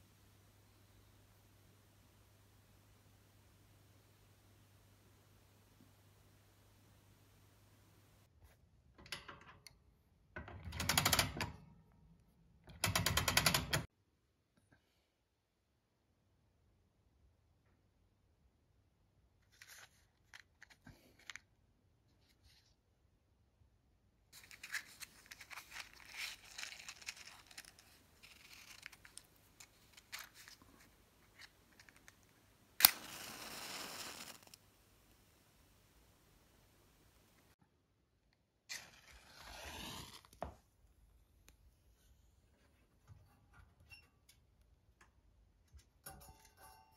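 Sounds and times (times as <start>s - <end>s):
matchbox clicks and rustles: 24.4s - 30.6s, 31.4s - 34.6s
match head hissing: 32.8s - 34.6s
match striking on box: 32.8s - 34.6s.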